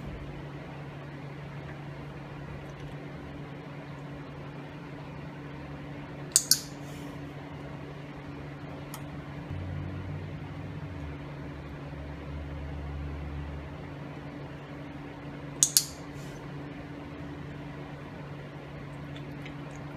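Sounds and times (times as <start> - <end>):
low mechanical hum: 0.0 - 19.9
training clicker clicks: 6.4 - 6.7, 15.6 - 16.0.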